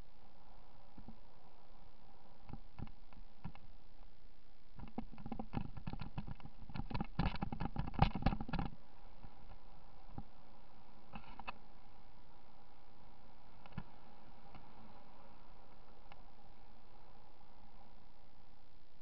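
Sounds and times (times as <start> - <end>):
faint hiss: 0.0 - 19.0
camera rattling and clattering: 4.8 - 8.7.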